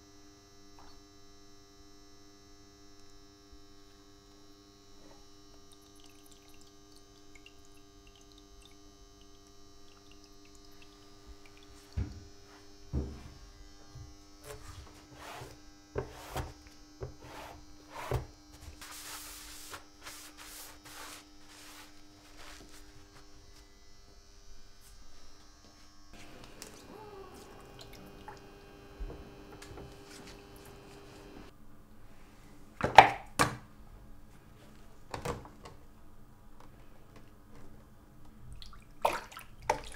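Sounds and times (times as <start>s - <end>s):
electrical hum: 0.0s - 32.1s
sheet rustling: 18.6s - 23.4s.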